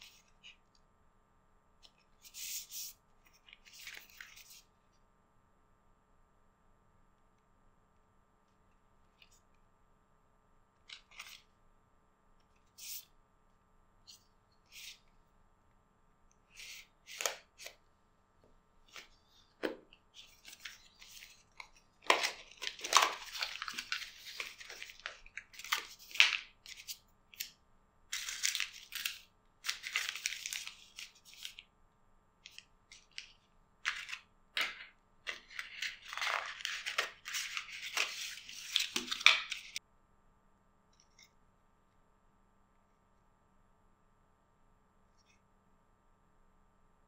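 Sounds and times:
packaging rustling and crinkling: 0:20.2 - 0:26.4.

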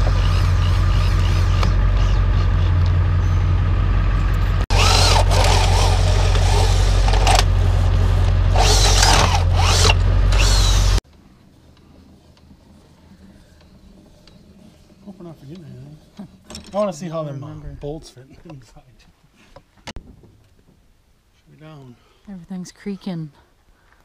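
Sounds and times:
power drill whining: 0:04.7 - 0:11.0.

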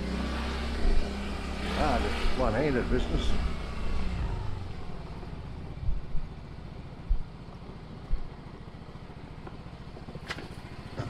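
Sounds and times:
motorbike engine running: 0:00.0 - 0:11.0
short low thumps: 0:00.8 - 0:01.4, 0:03.1 - 0:08.5.

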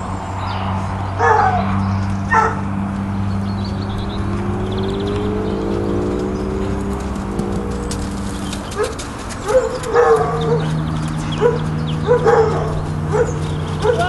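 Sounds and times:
steady low hum: 0:00.0 - 0:13.9
dog barking: 0:01.2 - 0:01.7, 0:02.3 - 0:02.7, 0:08.8 - 0:14.0.

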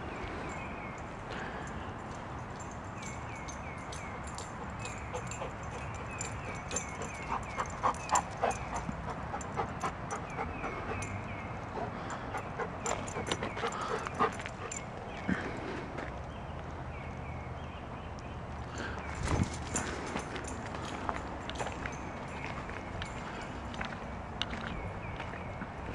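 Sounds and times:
footsteps on gravel: 0:19.2 - 0:25.9.

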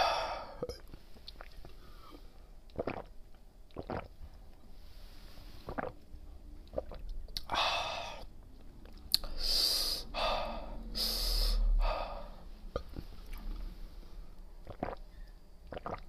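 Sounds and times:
wet mouth clicks: 0:02.7 - 0:03.1, 0:03.7 - 0:04.1, 0:06.7 - 0:07.5, 0:08.8 - 0:09.3, 0:14.6 - 0:15.0, 0:15.7 - 0:16.0.

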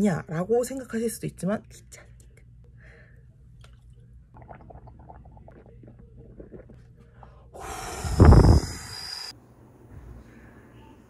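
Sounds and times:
mouthwash swishing and gurgling: 0:04.4 - 0:06.8, 0:07.7 - 0:09.3
breath blown onto microphone: 0:07.6 - 0:09.3
hiss: 0:07.6 - 0:09.3.

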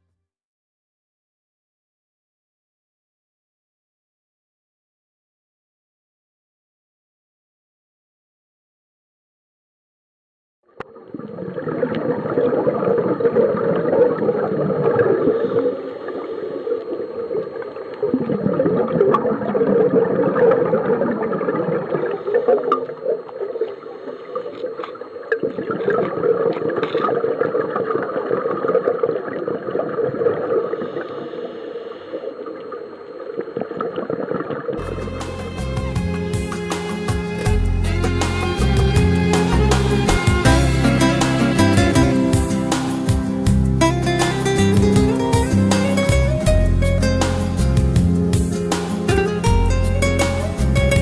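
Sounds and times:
underwater bubbling: 0:10.8 - 0:34.8.

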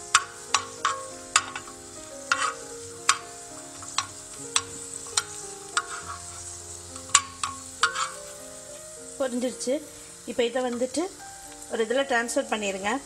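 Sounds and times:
nuts sizzling in fat: 0:00.0 - 0:13.0
metal spoon scraping pan: 0:00.1 - 0:08.4.

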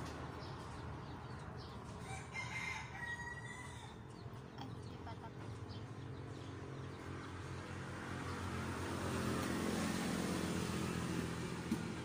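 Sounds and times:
vehicle engine passing: 0:05.3 - 0:12.0.

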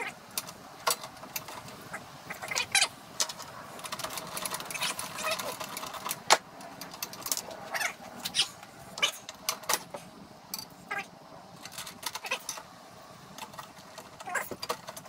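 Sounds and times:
clicks and light metal knocks: 0:00.3 - 0:01.9, 0:03.2 - 0:07.6, 0:11.6 - 0:12.7, 0:13.3 - 0:15.0.

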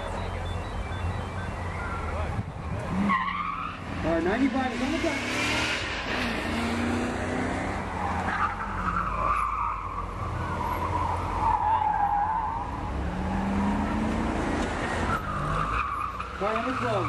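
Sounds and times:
car engine running hard: 0:00.0 - 0:09.2
tires squealing: 0:00.0 - 0:17.0.

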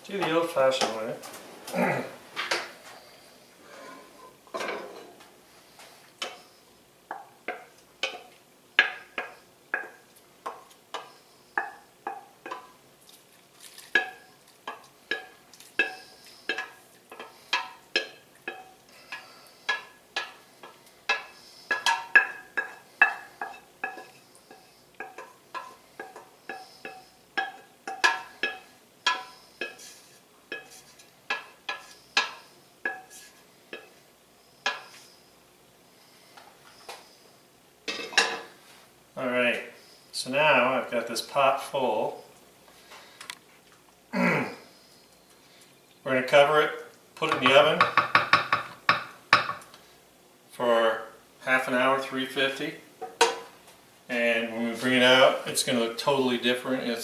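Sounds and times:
utensil scraping steel pot: 0:13.6 - 0:35.3
pot ringing: 0:21.1 - 0:29.8.

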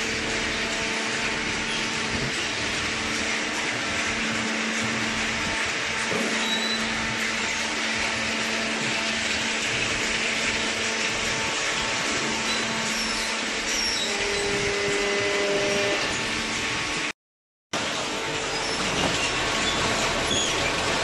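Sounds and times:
low machinery hum: 0:00.0 - 0:17.1
steady machine tone: 0:00.0 - 0:17.1.

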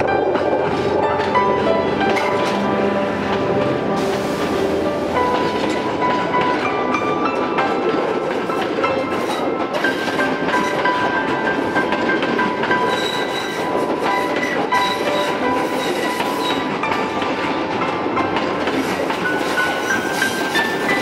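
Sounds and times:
train wheels rumbling on rails: 0:00.0 - 0:21.0
high metallic squeals: 0:12.9 - 0:13.6.

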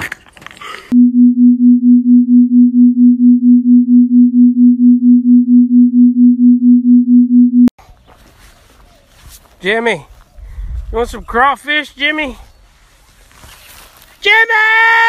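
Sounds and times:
low throbbing electronic tone: 0:01.0 - 0:07.7.

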